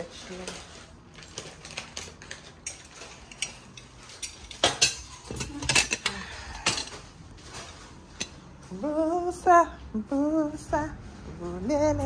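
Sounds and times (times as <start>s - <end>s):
kitchen utensils knocking: 2.3s - 7.0s.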